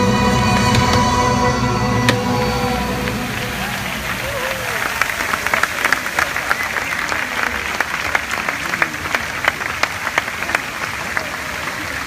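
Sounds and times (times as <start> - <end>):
crowd applauding: 0.0 - 12.0
close hand claps: 4.6 - 12.0.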